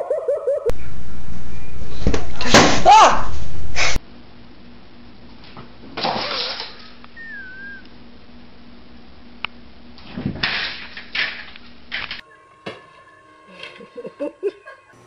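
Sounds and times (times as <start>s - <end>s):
wavering high chirp: 0.0s - 0.9s, 7.2s - 7.9s
faint steady hum: 0.7s - 2.5s, 3.4s - 15.0s
cat thumping and scrabbling at door: 10.0s - 11.4s.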